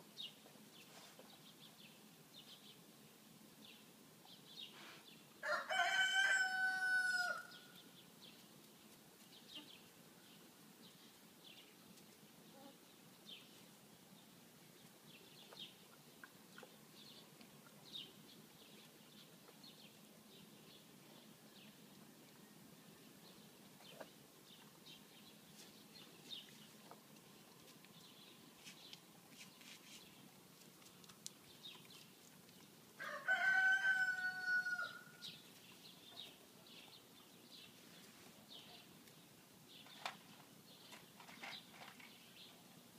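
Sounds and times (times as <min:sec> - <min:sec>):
rooster crowing: 0:05.4 - 0:07.6, 0:33.0 - 0:35.2.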